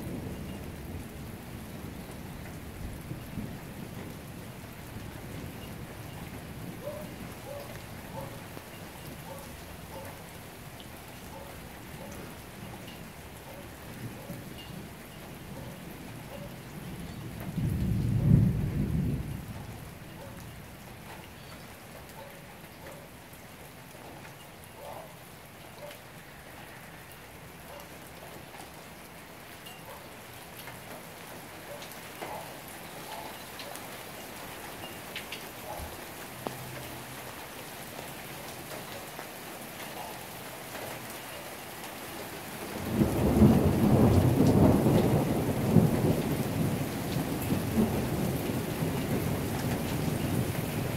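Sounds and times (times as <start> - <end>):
steady rain: 0.0 - 50.9
thunder rumbling: 14.0 - 20.2, 42.8 - 50.9.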